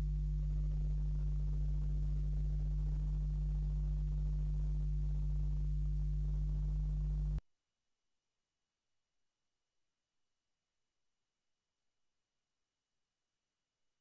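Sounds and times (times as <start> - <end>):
low electrical hum: 0.0 - 7.4.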